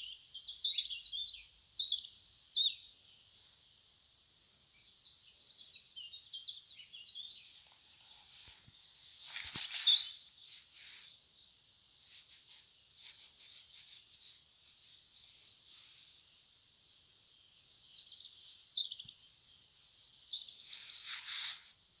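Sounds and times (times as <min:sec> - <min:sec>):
songbird chirping and trilling: 0:00.0 - 0:03.8, 0:04.5 - 0:21.7
faint high twittering: 0:04.6 - 0:21.8
short scratchy scrape: 0:20.9 - 0:21.7.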